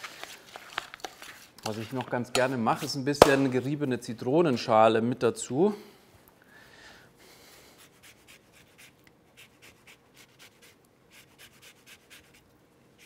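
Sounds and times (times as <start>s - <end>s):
lemon peel being grated: 7.8s - 12.4s.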